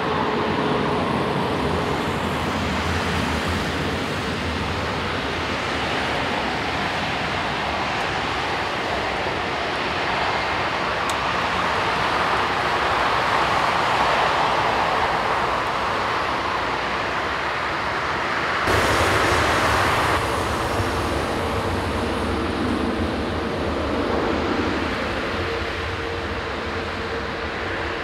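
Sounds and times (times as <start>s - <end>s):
jet engines whooshing: 0.0s - 28.0s
deep rumble: 18.7s - 27.3s.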